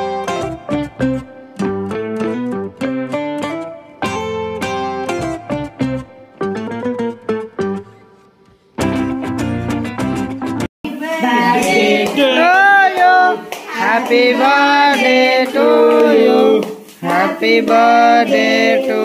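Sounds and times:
high singing voice: 0:10.9 - 0:19.0.

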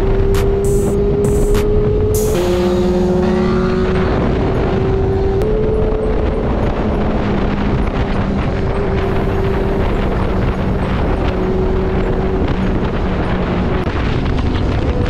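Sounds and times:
motorcycle engine cruising: 0:00.0 - 0:15.0
wind buffeting microphone: 0:00.0 - 0:15.0.

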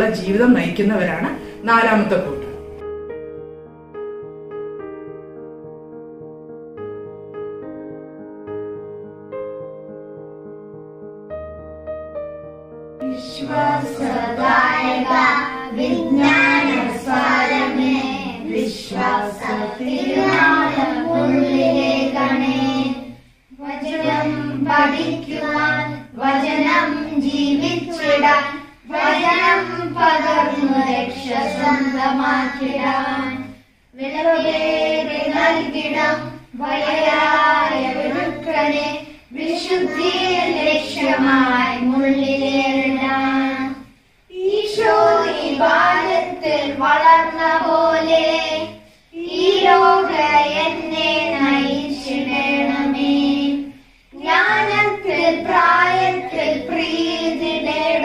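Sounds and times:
family singing a hymn: 0:13.0 - 0:58.0.

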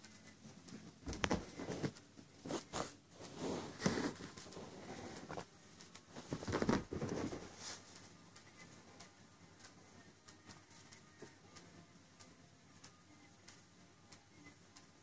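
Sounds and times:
kitten scrambling on fabric: 0:01.1 - 0:05.4, 0:06.1 - 0:07.8.

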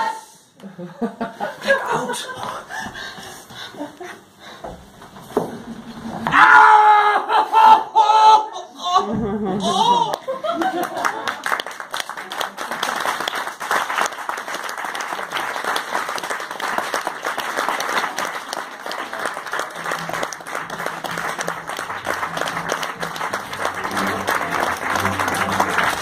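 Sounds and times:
audience applauding: 0:10.0 - 0:26.0.

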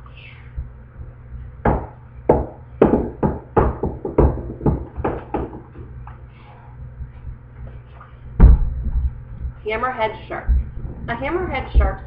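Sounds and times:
knocks and taps on book: 0:01.7 - 0:05.9.

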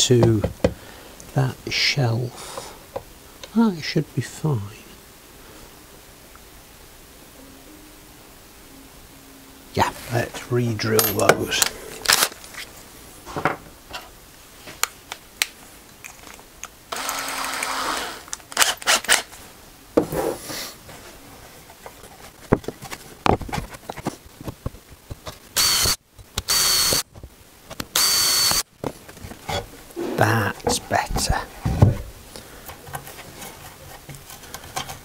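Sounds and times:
cordless drill whining: 0:16.9 - 0:19.2, 0:25.6 - 0:27.0, 0:28.0 - 0:28.6.

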